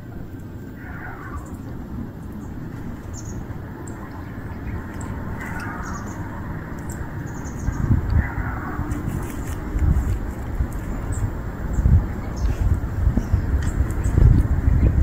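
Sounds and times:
harsh bird calls: 0:00.0 - 0:15.0
low rumble: 0:00.0 - 0:15.0
high bird chirps: 0:00.5 - 0:10.2.

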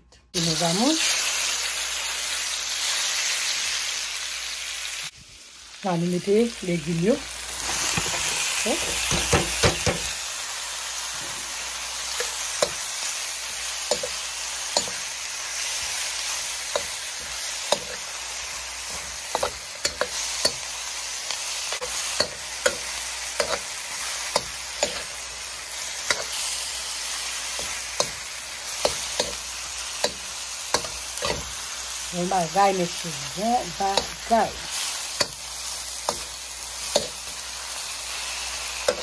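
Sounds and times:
vegetables sizzling in oil: 0:00.3 - 0:39.0
metal utensil scraping pan: 0:18.8 - 0:20.8, 0:21.7 - 0:25.3, 0:25.9 - 0:26.6, 0:27.4 - 0:31.6, 0:32.2 - 0:37.4, 0:38.8 - 0:39.0.

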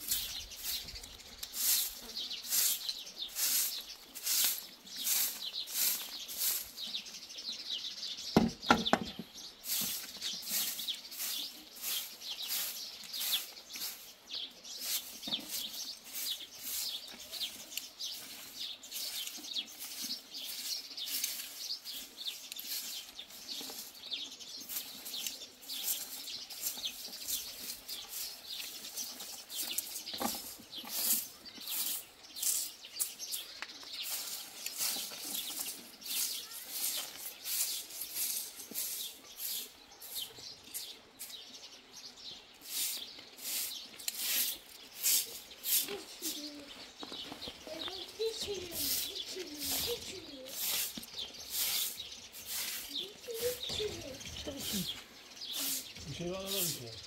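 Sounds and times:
straw broom sweeping: 0:00.0 - 0:07.4, 0:08.4 - 0:41.5, 0:42.5 - 0:56.9.

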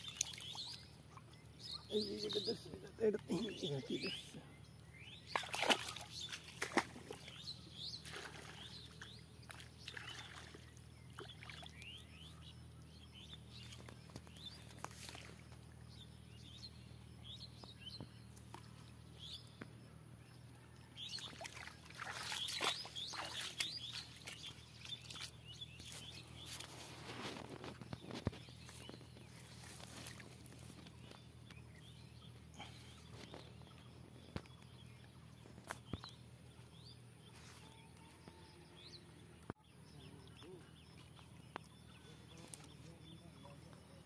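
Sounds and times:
small birds chirping: 0:00.0 - 0:44.0
pond weed rustling: 0:05.1 - 0:12.0, 0:13.4 - 0:15.8, 0:21.1 - 0:37.7
water splashing: 0:05.3 - 0:07.4, 0:08.0 - 0:12.0, 0:21.2 - 0:27.2.

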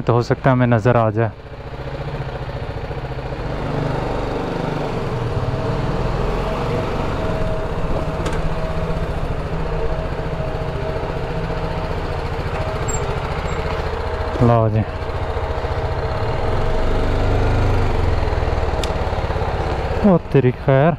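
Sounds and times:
motorcycle engine running: 0:00.1 - 0:20.9
steady whine: 0:04.9 - 0:20.9.

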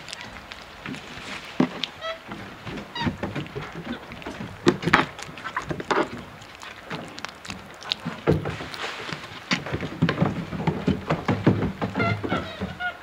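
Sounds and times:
monkeys knocking on a deck: 0:01.6 - 0:06.2, 0:06.8 - 0:13.0
thumps on a deck: 0:09.5 - 0:12.9.

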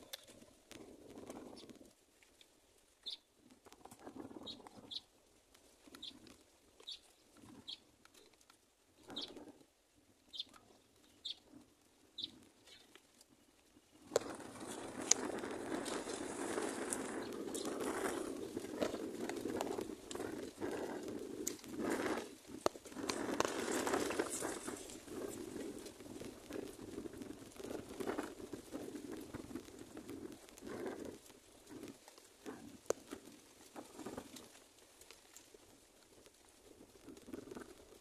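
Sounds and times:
continuous scratchy noise: 0:00.0 - 0:38.0
chicks chirping: 0:12.2 - 0:12.9.

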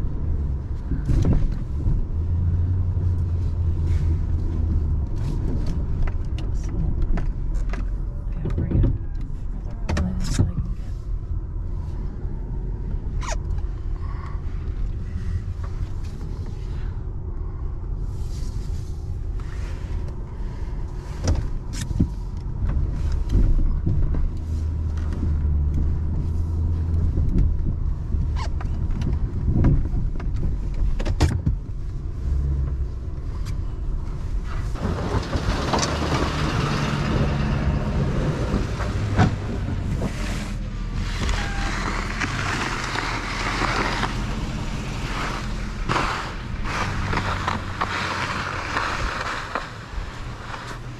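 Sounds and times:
pickup engine rumble: 0:00.0 - 0:50.9
knocks and clunks: 0:05.2 - 0:10.8, 0:34.6 - 0:40.2.

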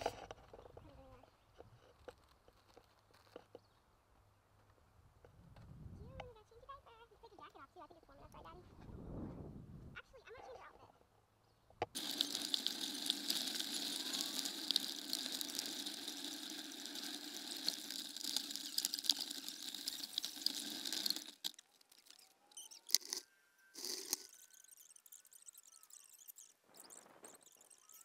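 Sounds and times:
small ticks: 0:12.0 - 0:28.0
faint thin whistling tones: 0:21.4 - 0:28.0.

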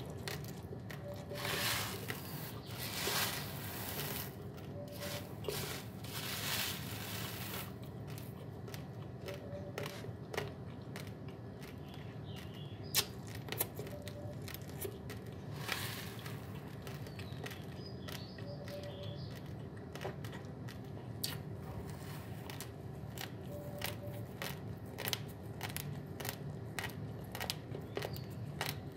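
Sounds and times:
rice grains cracking: 0:00.0 - 0:13.8, 0:14.4 - 0:18.4
dry rice grains rustling: 0:01.3 - 0:07.9.

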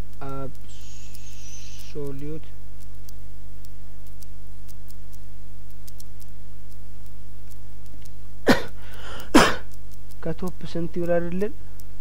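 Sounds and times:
electrical hum: 0:00.0 - 0:12.0
faint keyboard clicks: 0:00.1 - 0:08.2
man coughing: 0:08.5 - 0:09.7.

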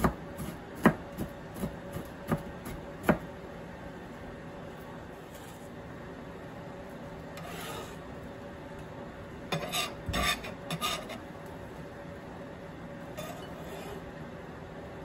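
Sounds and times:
scraper scraping cutting board: 0:07.4 - 0:08.0, 0:09.5 - 0:11.2, 0:13.2 - 0:14.0.

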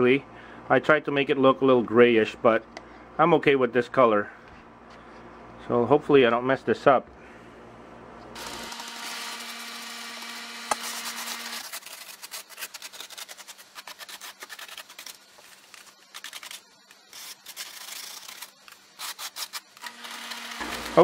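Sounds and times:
steady low hum: 0:00.0 - 0:21.0
paintbrush scrubbing on styrofoam: 0:10.8 - 0:19.8.

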